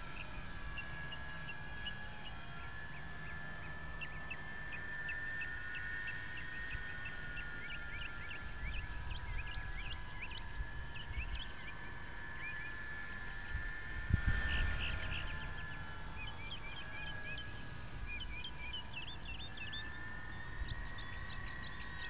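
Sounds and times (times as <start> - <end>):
model plane motors whining: 0.0 - 22.0
small birds chirping: 0.0 - 22.0
wind rumbling on microphone: 13.3 - 17.0.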